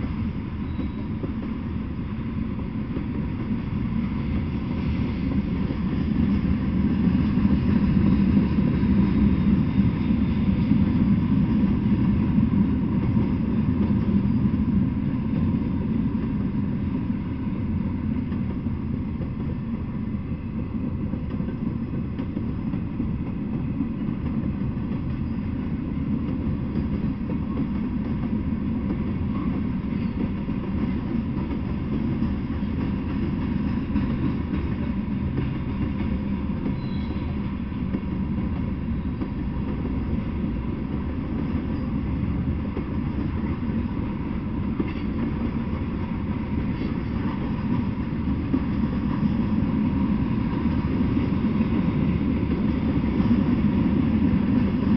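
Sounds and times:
freight train cars rolling: 0.0 - 54.9.

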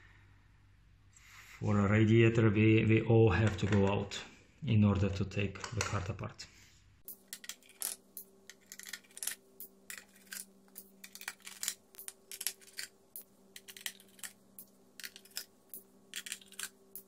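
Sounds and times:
faint steady hum: 0.0 - 17.0
small metal screws clinking: 7.1 - 12.9, 13.6 - 17.0.

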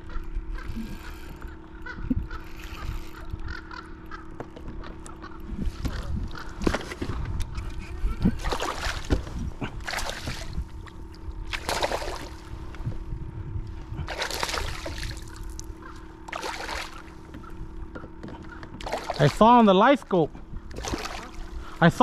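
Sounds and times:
faint steady hum: 0.0 - 22.0
wind on microphone: 5.5 - 10.9, 12.4 - 14.1
water splashing against kayak: 8.0 - 13.0, 14.0 - 17.4, 18.4 - 19.7, 20.6 - 21.8.

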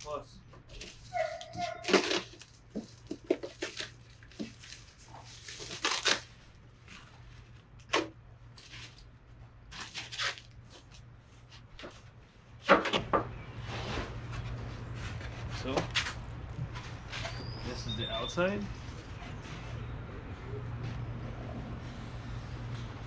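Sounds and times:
plastic wrap crinkling: 0.7 - 9.1.

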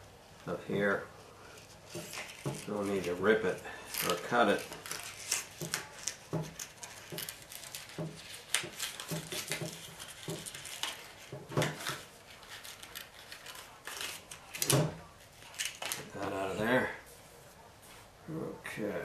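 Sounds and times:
paper tag rustling and clicking: 3.9 - 16.1.

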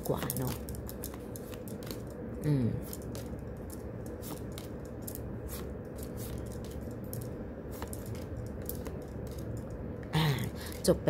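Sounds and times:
low room hum: 0.0 - 11.0
cards swishing and clicking: 0.2 - 2.1, 2.8 - 9.6.

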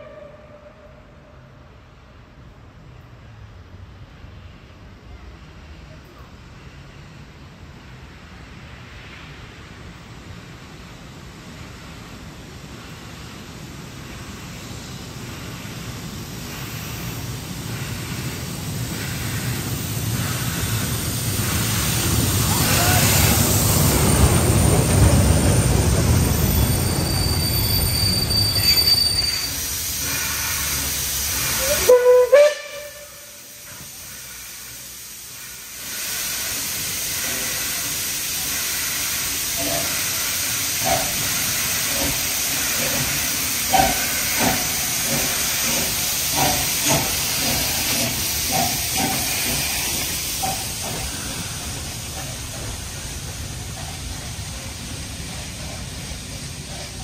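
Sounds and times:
steam whistle blast: 0.0 - 1.2, 26.9 - 33.8
steam locomotive hissing: 0.0 - 57.0.

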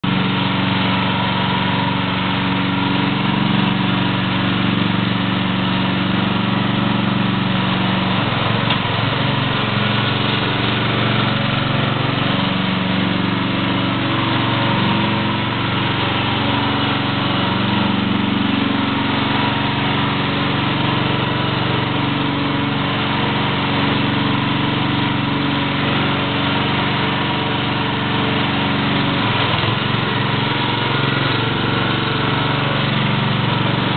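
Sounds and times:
small engine running: 0.0 - 33.9.

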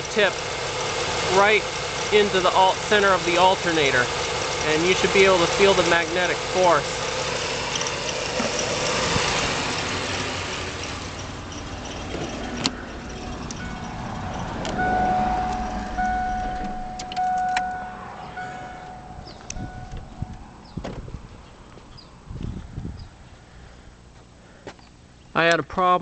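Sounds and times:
car engine running: 0.0 - 25.2
car electronic warning chime: 13.1 - 20.5.

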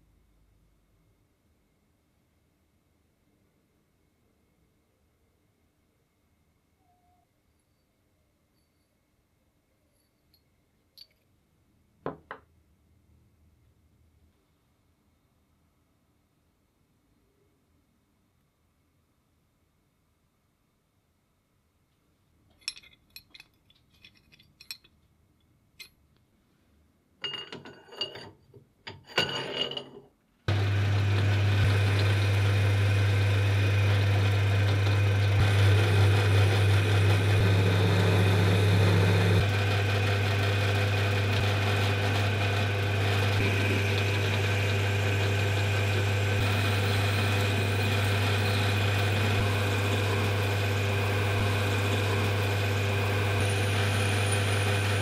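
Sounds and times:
small parts clicking and rattling: 22.5 - 26.0
electric motor humming: 30.5 - 55.0.

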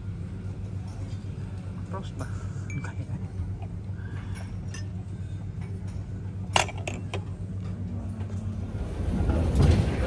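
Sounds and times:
low background hum: 0.0 - 10.0
glasses clinking: 4.3 - 5.0.

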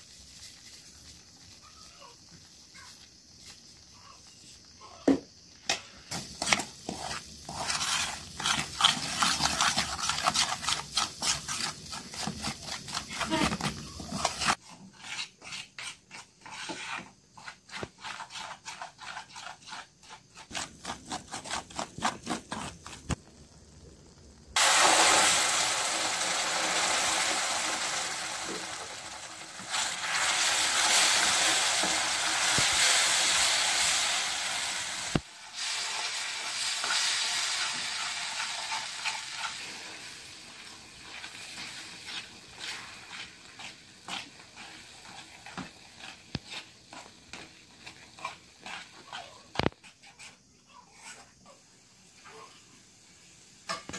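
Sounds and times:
food sizzling: 0.0 - 53.9
metal spoon scraping frying pan: 36.8 - 51.3.

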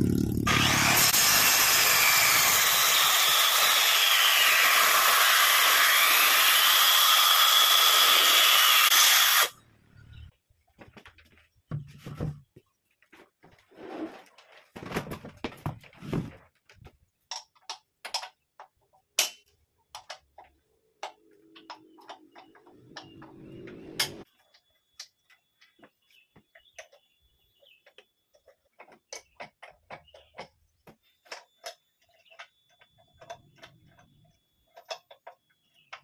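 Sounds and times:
scuffing and handling noise: 10.6 - 17.0.

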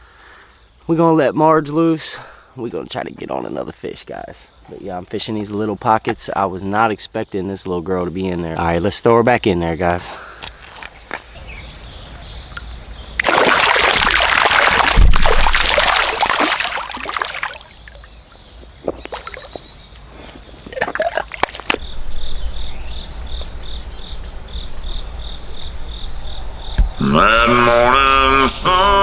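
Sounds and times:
crickets chirring: 0.0 - 29.0
water splashing: 13.2 - 19.7, 20.6 - 22.5.

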